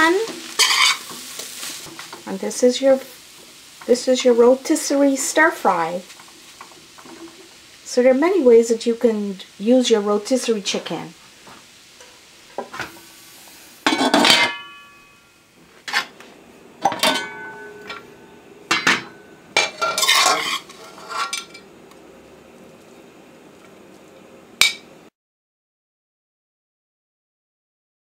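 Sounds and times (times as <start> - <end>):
metal utensil scraping wok: 0.0 - 7.6, 12.0 - 16.2, 16.8 - 21.7.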